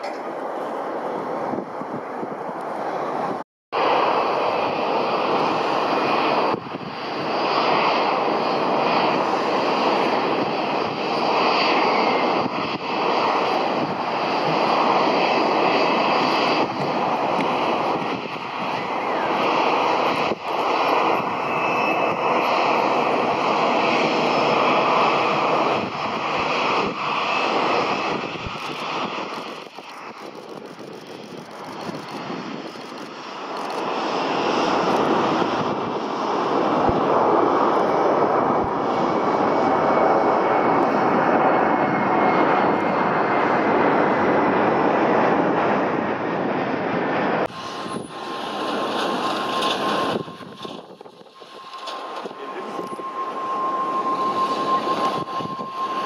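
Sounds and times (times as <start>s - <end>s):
airliner engines running: 0.0s - 56.0s
faint whine falling in pitch: 49.2s - 56.0s.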